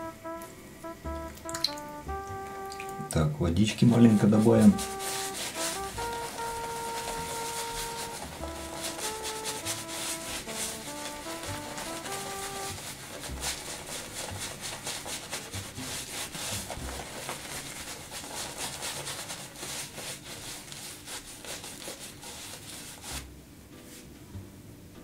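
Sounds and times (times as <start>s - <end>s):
shaving brush rubbing face: 4.0s - 23.3s.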